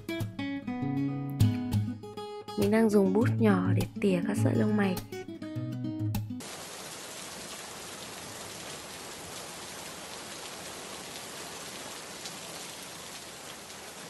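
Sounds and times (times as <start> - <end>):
raindrops ticking: 6.4 - 14.0
steady rain hiss: 6.4 - 14.0.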